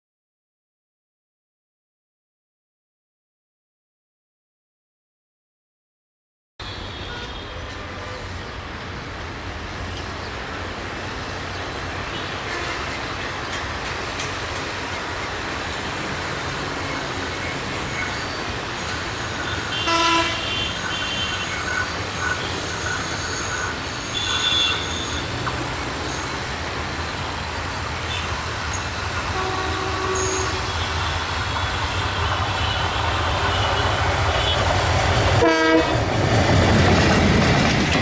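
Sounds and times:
train horn toots: 6.6 - 7.6, 12.1 - 13.1, 19.4 - 21.7, 24.1 - 25.5, 29.3 - 34.7, 35.4 - 36.0
diesel locomotive engine rumble: 6.6 - 38.0.

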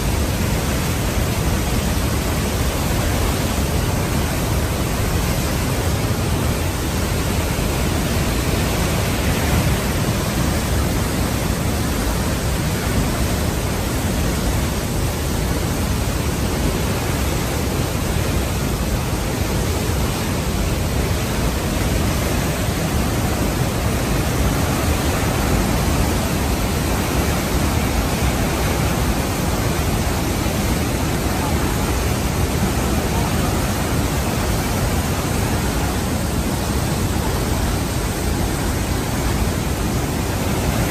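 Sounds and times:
waterfall rushing: 0.0 - 40.9.

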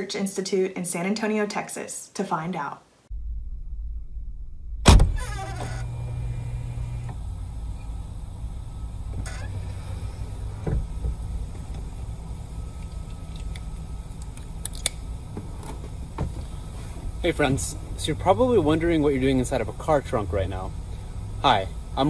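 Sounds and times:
steady low rumble: 3.1 - 5.2, 5.8 - 22.0
car trunk lid opening hum: 4.5 - 19.0.

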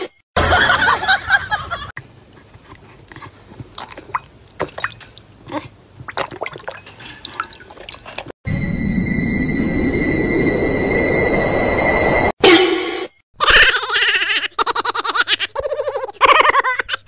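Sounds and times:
dog lapping water in a bowl: 2.0 - 8.3.

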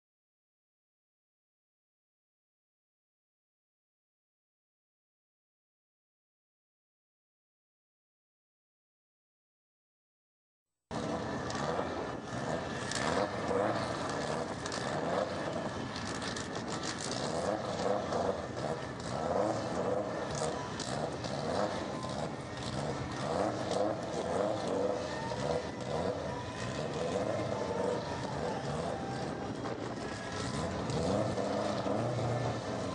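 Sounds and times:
sharp engine crackles: 10.9 - 32.9
turbocharged car engine revving: 10.9 - 32.9.

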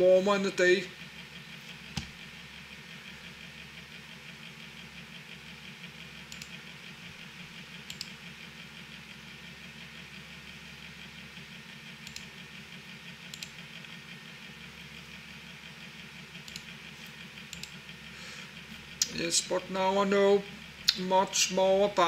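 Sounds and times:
low electrical hum: 0.0 - 22.0
computer mouse clicks: 6.3 - 6.6, 7.9 - 8.2, 12.0 - 12.3, 13.3 - 13.6, 16.4 - 16.7, 17.5 - 17.8.

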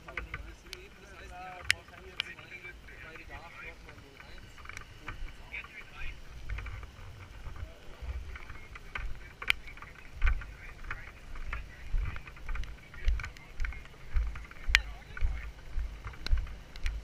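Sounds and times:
footsteps on wet road: 0.0 - 17.0.

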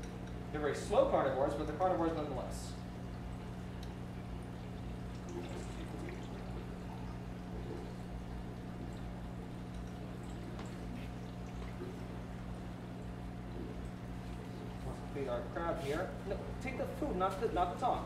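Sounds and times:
low pump hum: 0.0 - 18.0
water pouring and trickling: 3.0 - 16.2.

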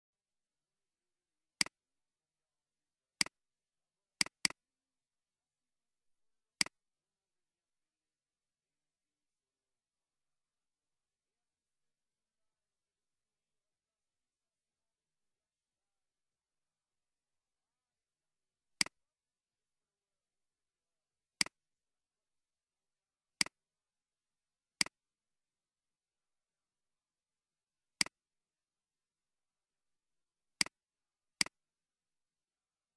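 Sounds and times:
computer mouse clicks: 4.2 - 4.6, 28.0 - 28.2.

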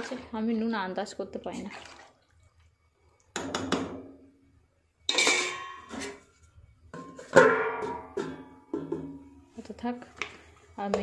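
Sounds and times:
metal lid clanking on pan: 5.1 - 6.2.

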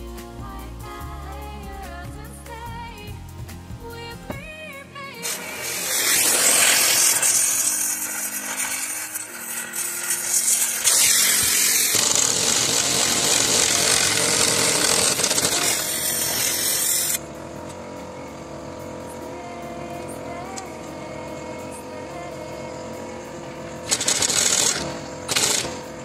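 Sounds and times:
power tool running: 5.2 - 26.0.

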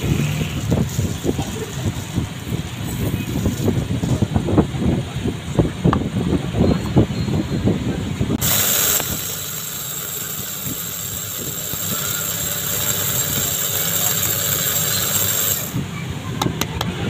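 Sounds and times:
electric spice grinder grinding seeds: 8.4 - 15.8.

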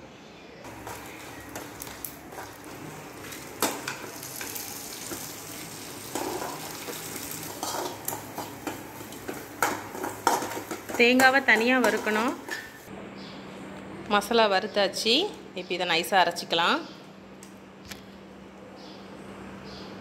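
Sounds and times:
oil sizzling: 0.7 - 12.9
metal spoon scraping metal pan: 6.0 - 12.8.

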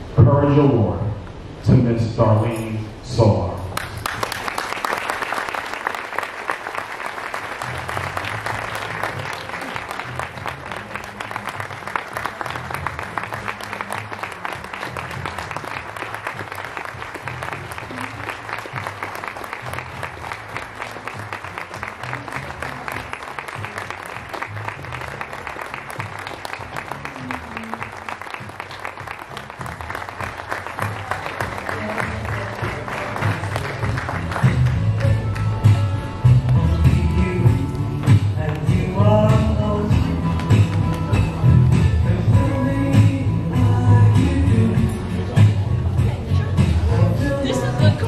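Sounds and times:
audience applauding: 3.8 - 35.8
music with stepping bass line: 7.6 - 48.0.

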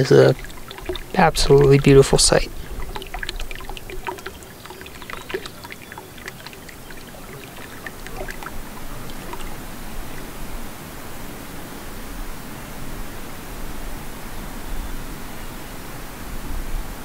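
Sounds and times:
small splashes: 0.0 - 11.2
water lapping at the shore: 0.0 - 15.3.

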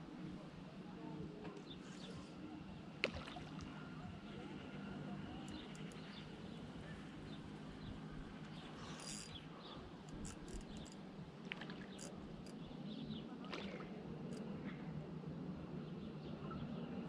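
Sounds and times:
low background hum: 0.0 - 17.0
small clicks: 5.4 - 6.2, 8.4 - 9.4, 10.0 - 12.6.

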